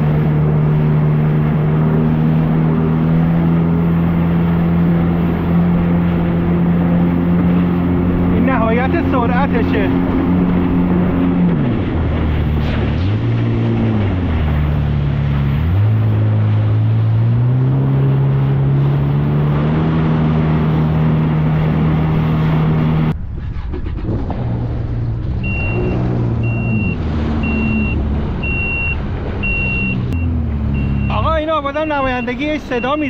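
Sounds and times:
jet ski engine running: 0.0s - 33.0s
high electronic beep: 25.4s - 33.0s.

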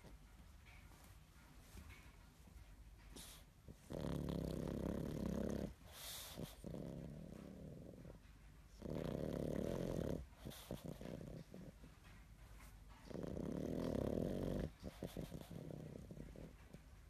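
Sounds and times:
dog breathing softly: 0.0s - 17.0s
dog snoring: 3.2s - 11.8s, 13.0s - 16.7s.

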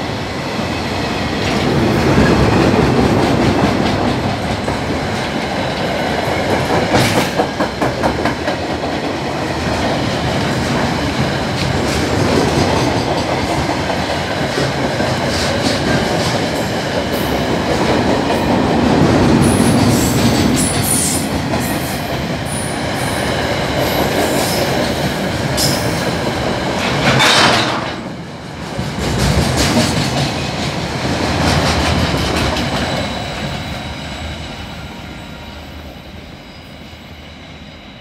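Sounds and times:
loud rush of passing train: 0.0s - 38.0s
train wheels clattering over rails: 0.6s - 34.1s.

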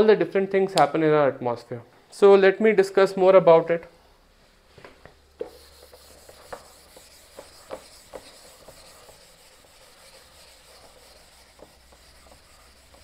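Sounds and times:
eraser swishing on whiteboard: 5.4s - 13.0s.

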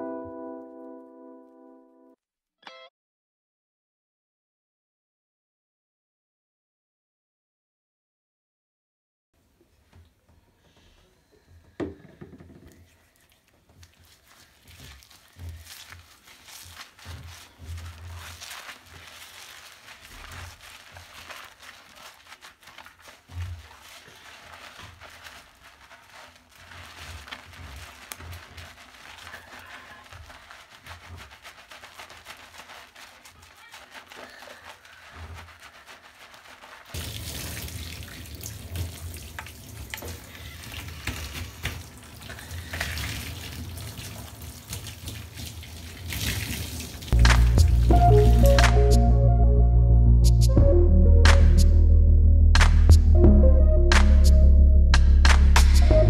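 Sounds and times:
water pouring over hair: 12.7s - 48.8s
hands scrubbing wet hair: 12.7s - 49.2s, 55.0s - 56.0s
loud music: 47.2s - 56.0s.

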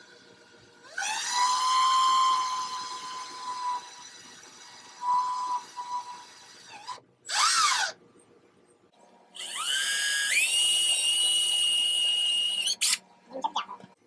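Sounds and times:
power drill whining: 0.8s - 7.9s, 9.4s - 13.0s.

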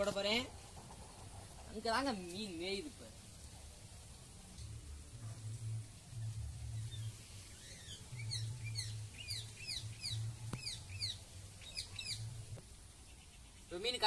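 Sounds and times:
low microphone rumble: 3.1s - 13.6s
bird chirping: 6.1s - 14.0s.

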